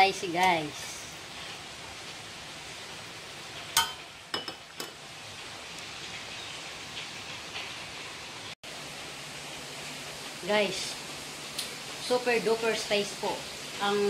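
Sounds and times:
steady low hiss: 0.0 - 14.0.

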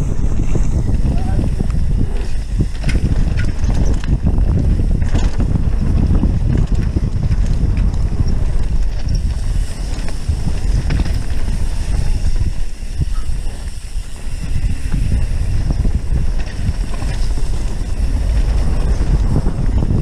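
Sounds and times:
bike rattling and clicking: 0.0 - 20.0
bike tyres on dirt: 0.0 - 20.0
wind rumbling on microphone: 0.0 - 20.0.

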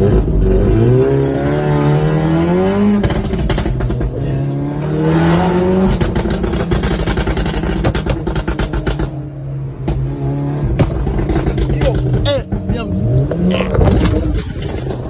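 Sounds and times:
car engine accelerating hard: 0.0 - 15.0
exhaust pops and bangs: 2.8 - 4.2, 5.6 - 9.2, 9.8 - 15.0.

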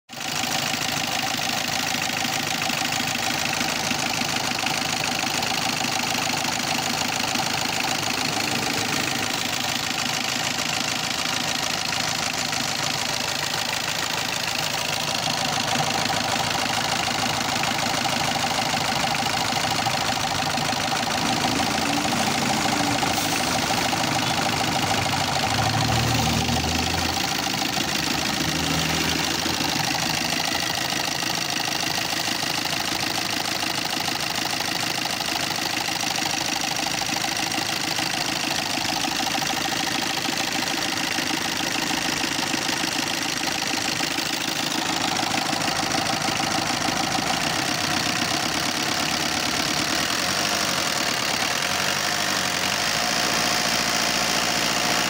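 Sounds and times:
diesel engine idling: 0.1 - 55.0
engine knocking: 0.1 - 55.0.

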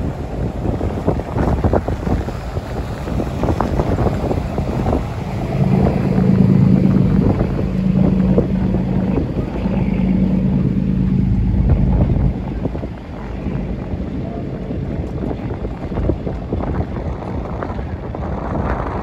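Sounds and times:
boat engine rumbling: 0.0 - 19.0
wind buffeting microphone: 0.0 - 19.0
steady low hum: 3.7 - 16.0.

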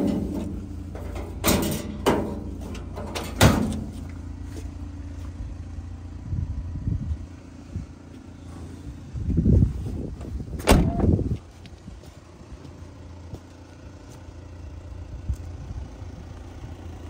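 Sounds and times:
van tailgate slamming: 0.0 - 4.0, 10.6 - 11.2
low rumble: 0.0 - 17.0.

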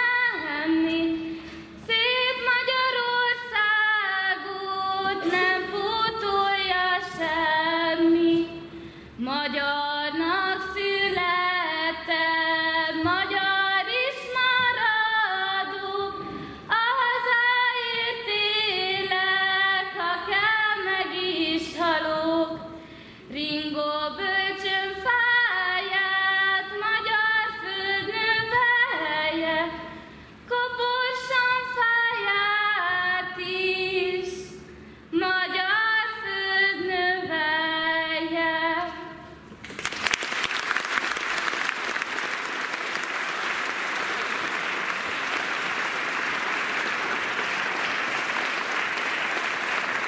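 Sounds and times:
woman singing unaccompanied: 0.0 - 39.3.

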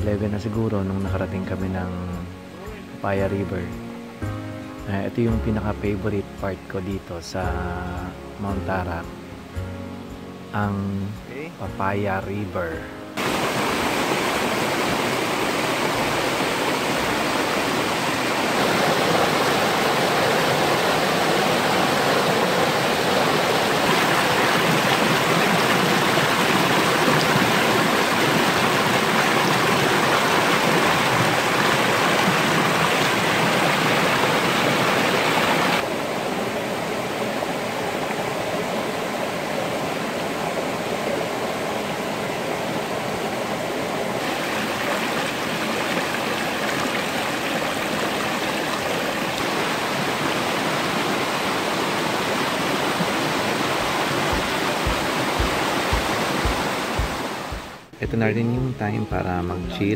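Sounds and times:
river rushing over rocks: 13.1 - 57.9.

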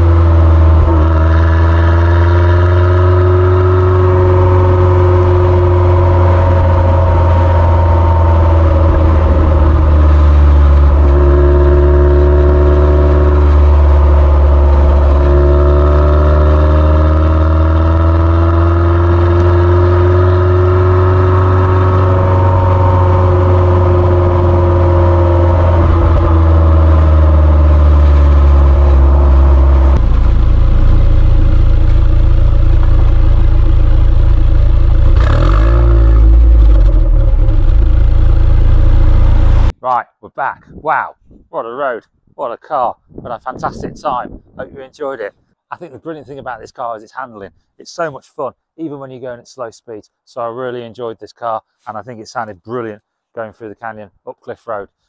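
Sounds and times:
car exhaust revving: 0.0 - 39.7.

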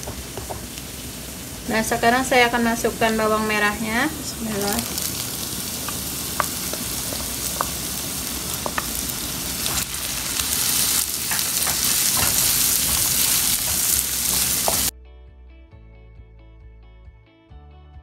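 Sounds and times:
onions sizzling in hot oil: 0.0 - 14.9
wooden spoon scraping a pan: 4.3 - 14.9
soft music: 10.4 - 18.0.

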